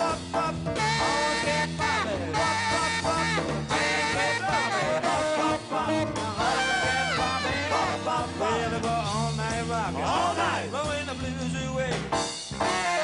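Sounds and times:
saxophones playing sliding phrases: 0:00.0 - 0:09.2, 0:12.6 - 0:13.0
bass guitar: 0:00.0 - 0:13.0
drums: 0:00.0 - 0:13.0
keyboard: 0:00.0 - 0:13.0.

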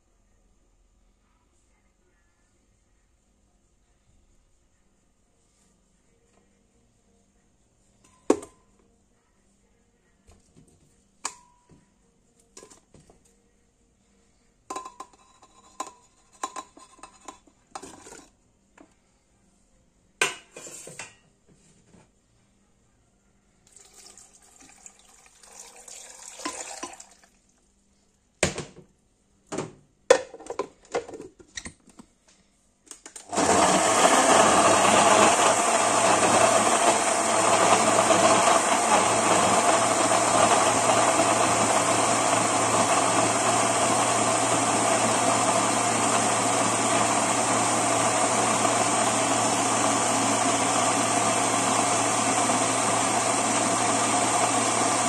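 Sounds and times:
blender motor running: 0:33.3 - 0:55.0.

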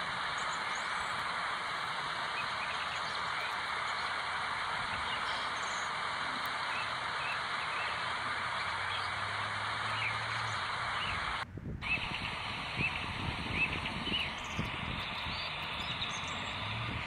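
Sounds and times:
faint bird chirps: 0:11.8 - 0:16.9.

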